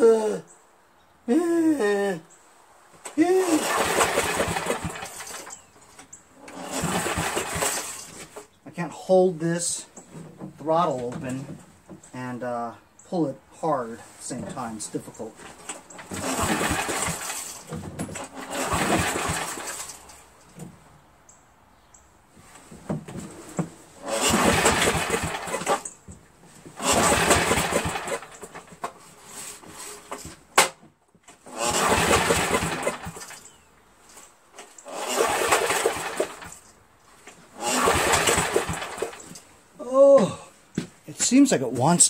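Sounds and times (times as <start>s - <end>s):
recoil starter pulls cranking engine: 3.1s - 8.6s, 15.4s - 20.7s, 23.4s - 26.0s, 26.6s - 39.5s.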